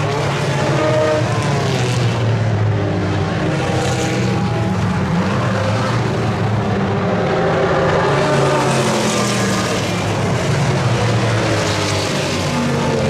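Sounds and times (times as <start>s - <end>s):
racing car engines passing: 0.0s - 13.0s.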